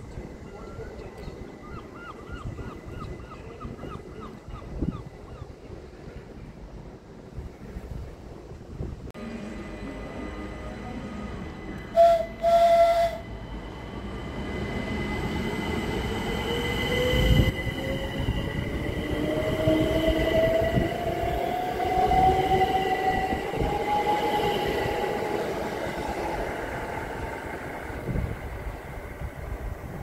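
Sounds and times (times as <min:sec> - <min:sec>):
train horn: 0:09.2 - 0:13.4.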